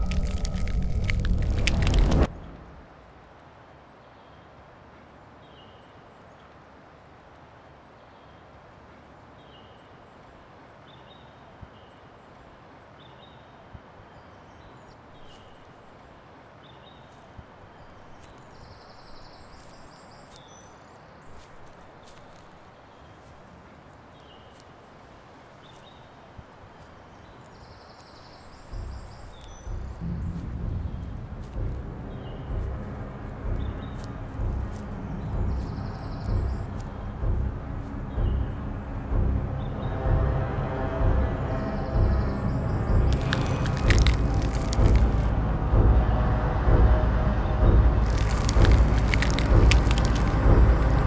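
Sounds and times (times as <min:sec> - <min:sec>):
loud low rumble: 0:00.0 - 0:03.0, 0:28.7 - 0:51.0
soft steady hiss: 0:00.0 - 0:39.1
bird song: 0:05.3 - 0:06.6, 0:07.9 - 0:08.6, 0:09.2 - 0:45.2.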